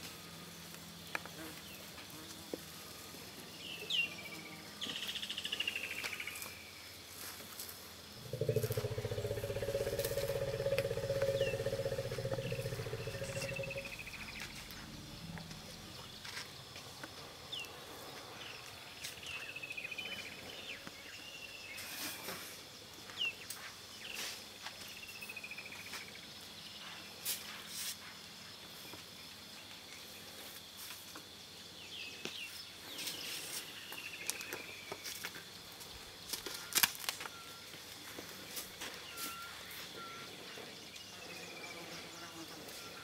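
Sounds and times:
high insect drone: 5.6 - 16.6
falling rattling call: 8.2 - 14.7.

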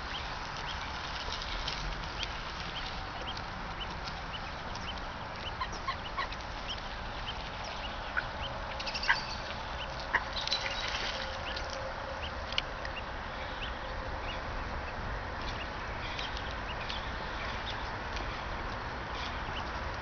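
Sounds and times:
water birds chirping: 0.0 - 20.0
sharp bird calls: 2.8 - 11.6.

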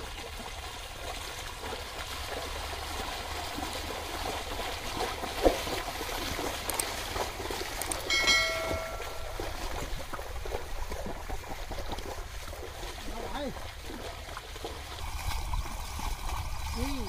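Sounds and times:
muddy water sloshing and splashing: 0.0 - 17.0
short ringing chime: 8.1 - 9.8.

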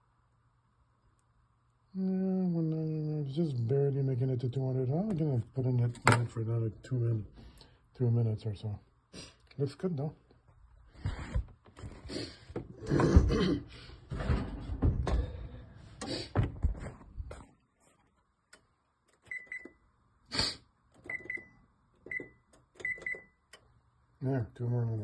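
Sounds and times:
oven door shutting: 14.1 - 16.8
clattering and knocks: 14.1 - 17.1.

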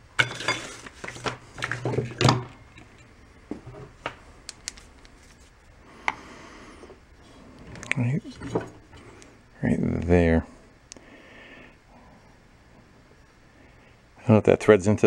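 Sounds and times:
tools handled on workbench: 0.2 - 4.8.

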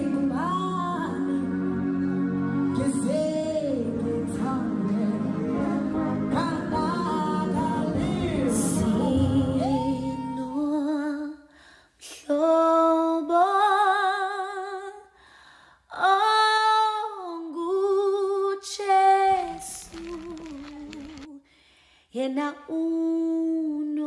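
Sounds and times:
woman singing gospel song: 0.0 - 1.7, 2.8 - 15.1, 15.9 - 21.4, 22.1 - 24.0
backing music: 0.0 - 10.5.

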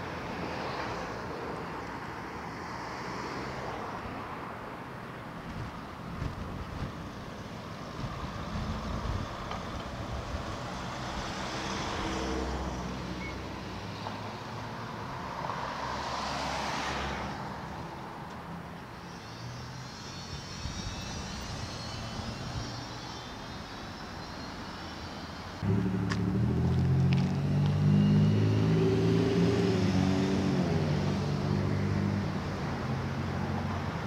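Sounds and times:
vehicles passing: 0.0 - 34.0
traffic low rumble: 20.3 - 34.0.

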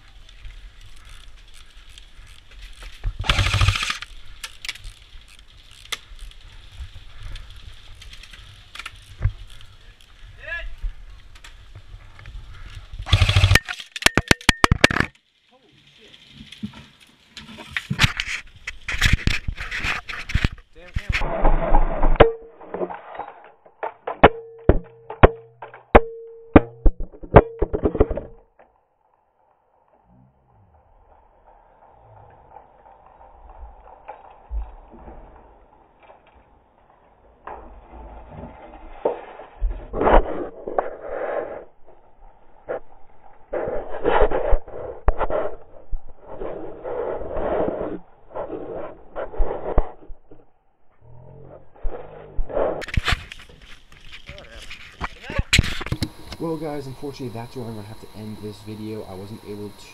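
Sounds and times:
airsoft gun full-auto burst: 3.2 - 4.1, 13.1 - 13.7.

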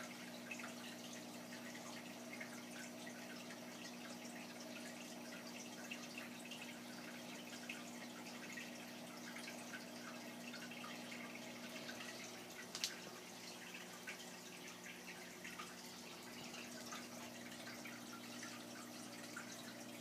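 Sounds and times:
aquarium filter bubbling: 0.0 - 20.0.

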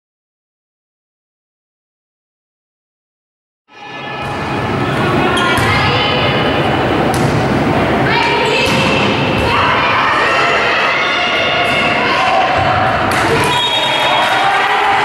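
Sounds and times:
people calling and shouting: 3.7 - 15.0
volleyball being struck: 7.0 - 7.6.

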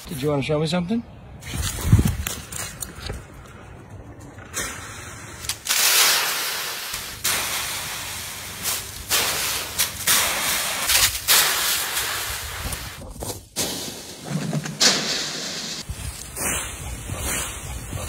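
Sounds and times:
dry leaves rustling and crunching: 5.4 - 11.6.

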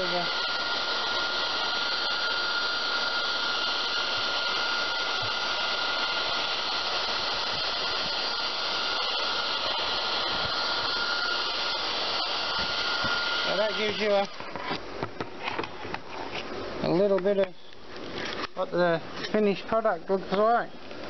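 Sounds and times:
heat gun blowing with whine: 0.0 - 16.6.

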